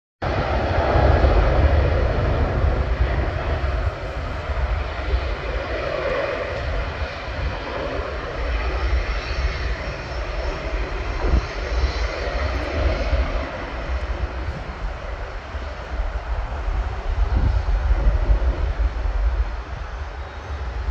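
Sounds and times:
jet aircraft passing: 0.2s - 20.9s.

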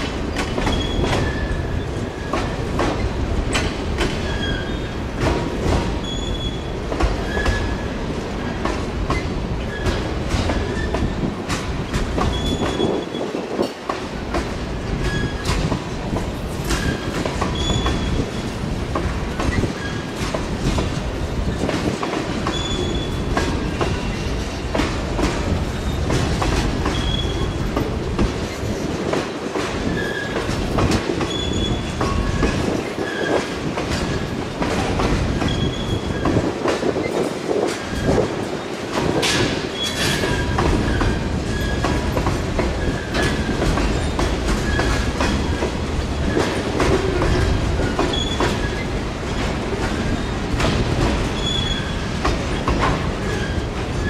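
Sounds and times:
freight train rumbling past: 0.0s - 54.0s
wheels clicking on rails: 0.0s - 54.0s
wheel squeals: 0.7s - 2.4s, 4.2s - 5.0s, 6.0s - 7.8s, 12.3s - 13.4s, 15.0s - 15.5s, 16.7s - 18.3s, 22.5s - 24.6s, 26.9s - 27.7s, 29.9s - 30.4s, 31.3s - 34.3s, 35.4s - 36.4s, 39.8s - 42.1s, 46.3s - 48.9s, 51.3s - 54.0s.

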